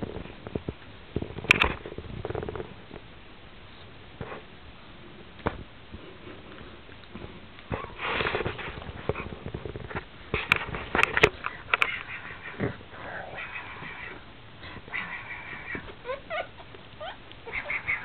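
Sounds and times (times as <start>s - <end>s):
dog sniffing and snuffling: 6.0s - 15.9s.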